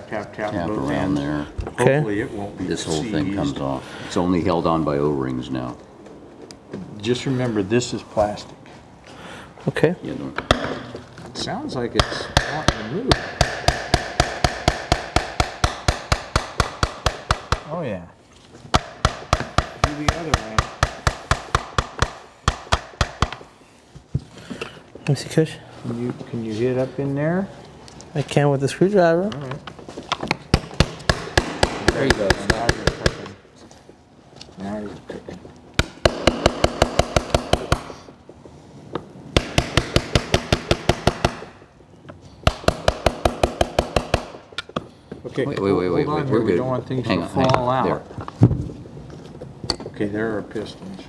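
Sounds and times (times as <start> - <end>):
hammer tapping on metal: 12.0 - 17.7, 18.7 - 23.5, 35.8 - 38.2, 39.4 - 41.5, 42.4 - 44.8.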